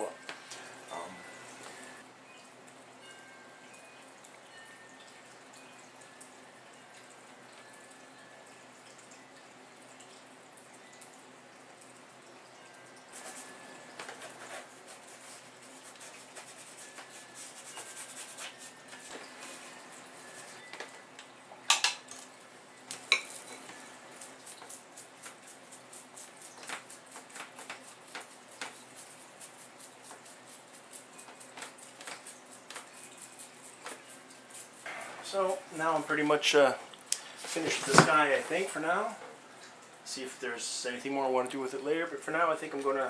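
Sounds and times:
paintbrush scratching on canvas: 0:13.2 - 0:20.6, 0:27.6 - 0:36.1.

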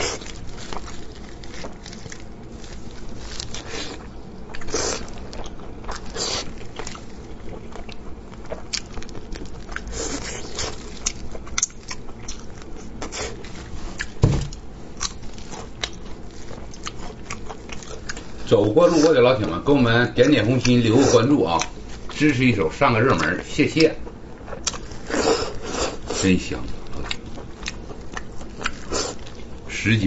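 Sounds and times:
wet chewing and smacking: 0:00.0 - 0:22.4, 0:23.0 - 0:29.7
plastic gloves crinkling: 0:00.0 - 0:23.4, 0:24.3 - 0:30.0
heavy thump: 0:14.2 - 0:14.6.

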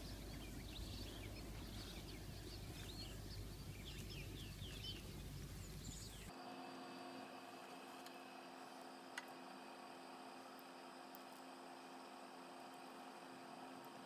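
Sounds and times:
bird chirps: 0:00.0 - 0:06.3
low background rumble: 0:00.0 - 0:06.3
room hum: 0:00.0 - 0:14.0.

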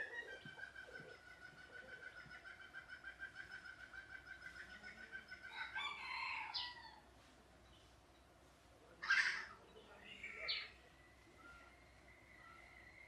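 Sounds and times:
rooster crowing: 0:05.5 - 0:07.0.

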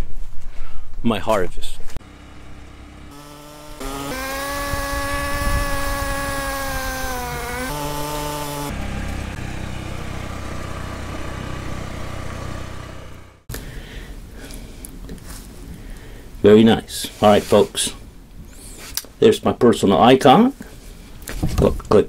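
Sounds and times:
utility vehicle engine running: 0:02.0 - 0:13.5.

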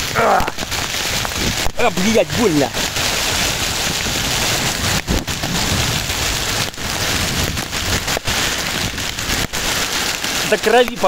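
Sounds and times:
heavy rain and hail on road: 0:00.0 - 0:11.0.

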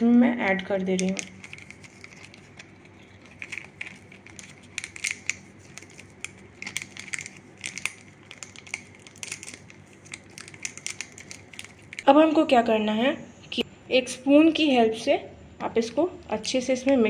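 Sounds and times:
foil sachet crinkling: 0:01.0 - 0:12.1.

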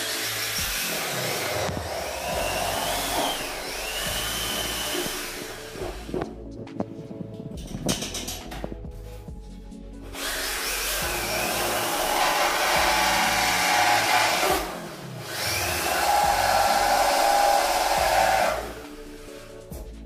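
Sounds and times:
paint spray gun motor drone: 0:00.0 - 0:06.2, 0:10.2 - 0:19.3.

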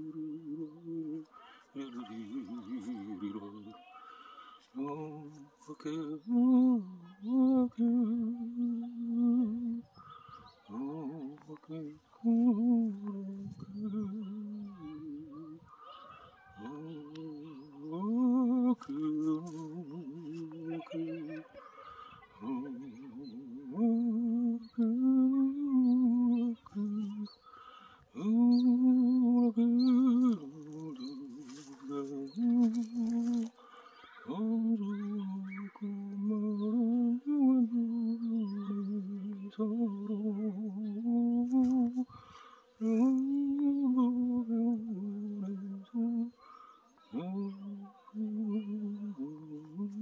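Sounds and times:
person humming: 0:00.0 - 0:03.8, 0:10.7 - 0:15.7, 0:16.6 - 0:21.6, 0:22.4 - 0:27.4, 0:28.1 - 0:46.4, 0:47.1 - 0:50.0.

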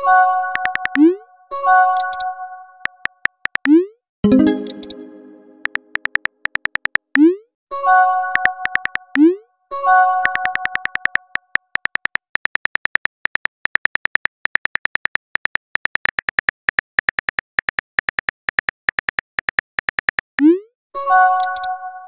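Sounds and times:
phone keyboard typing clicks: 0:00.5 - 0:01.1, 0:02.0 - 0:07.3, 0:08.3 - 0:09.3, 0:10.2 - 0:20.4, 0:21.4 - 0:21.7
chime chord: 0:04.3 - 0:05.9.

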